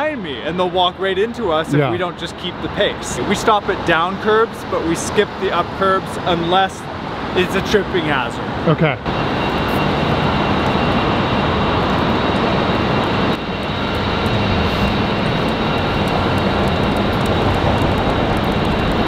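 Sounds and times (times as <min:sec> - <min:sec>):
loud mechanical roar of machinery: 0:08.4 - 0:19.0
low hum: 0:09.7 - 0:19.0.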